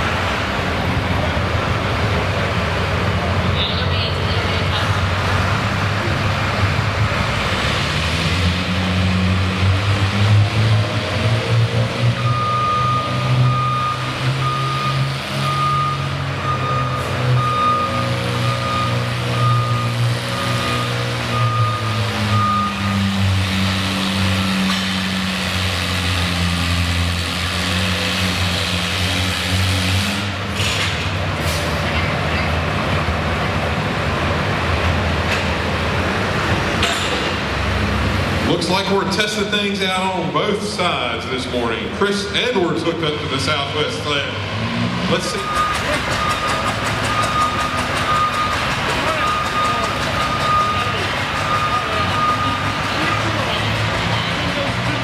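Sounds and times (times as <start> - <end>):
tractor engine running: 11.8 - 55.0
tractor engine idling: 45.1 - 55.0.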